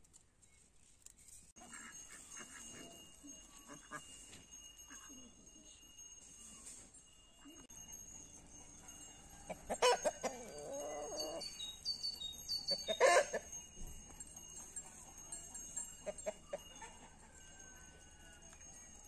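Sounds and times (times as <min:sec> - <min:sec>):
chickens clucking: 0:07.4 - 0:17.6
sharp chicken calls: 0:12.5 - 0:13.4.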